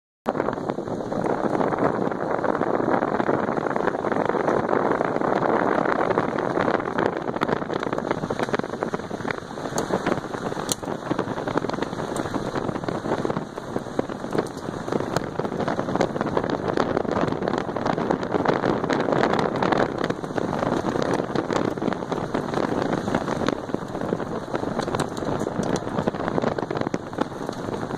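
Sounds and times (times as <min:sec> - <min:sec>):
wind on microphone: 0:00.3 - 0:27.9
tyres rolling on wet gravel: 0:03.2 - 0:27.9.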